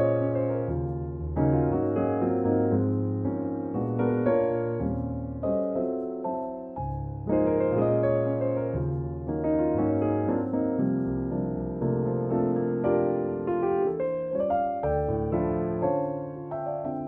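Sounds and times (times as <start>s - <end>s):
slow piano chords: 0.0s - 17.0s.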